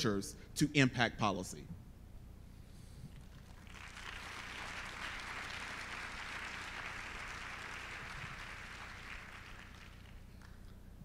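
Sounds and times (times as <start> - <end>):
faint audience applause: 3.1 - 10.8.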